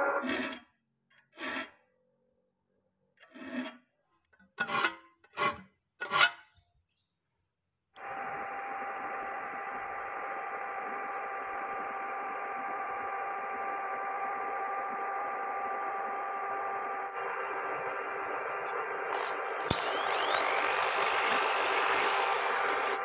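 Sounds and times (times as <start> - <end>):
file rasping on saw teeth: 19.1 - 23.0.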